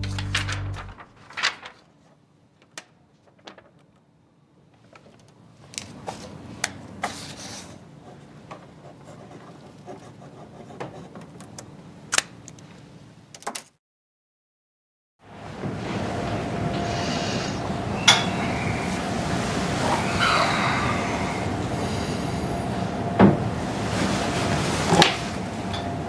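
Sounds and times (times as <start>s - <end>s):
paper sheets rustling: 0.0s - 4.0s.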